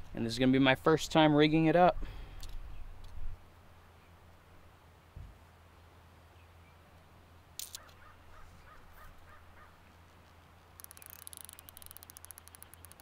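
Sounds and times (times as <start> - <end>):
fly reel drag clicking: 10.8 - 13.0.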